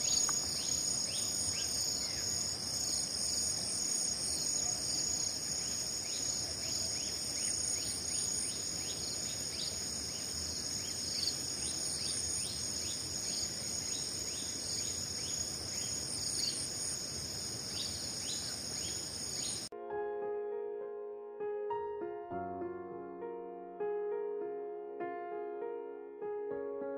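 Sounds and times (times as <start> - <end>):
insects chorus: 0.0 - 19.7
piano music: 19.7 - 26.9.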